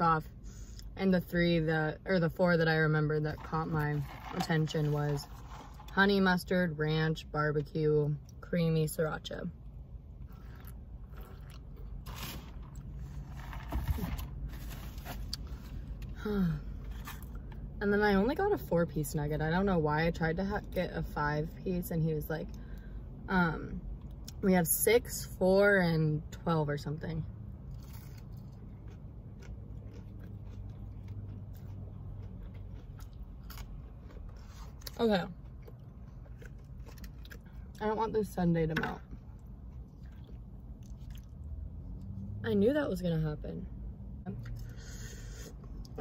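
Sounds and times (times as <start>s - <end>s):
car interior hum: 0.0s - 46.0s
person chewing: 10.2s - 14.1s, 27.7s - 37.8s, 39.1s - 41.5s
soft rustling: 12.1s - 15.9s.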